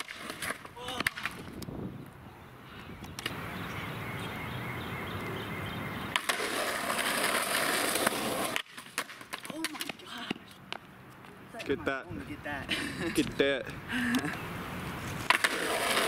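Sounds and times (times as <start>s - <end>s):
skateboard clacks: 0.0s - 1.6s, 6.1s - 10.9s, 15.2s - 16.0s
skateboard wheels rolling: 0.0s - 1.7s, 6.0s - 11.6s, 14.3s - 16.0s.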